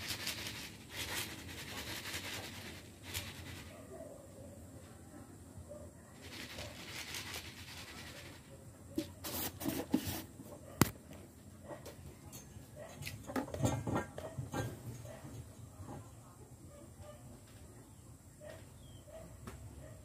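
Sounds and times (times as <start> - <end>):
rice rattling in container: 0.0 - 3.8, 6.2 - 8.6.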